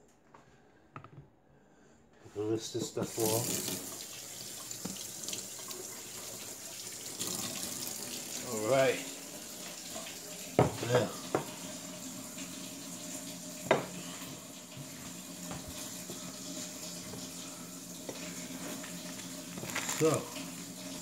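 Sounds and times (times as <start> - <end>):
plate knocking on counter: 10.6 - 11.5.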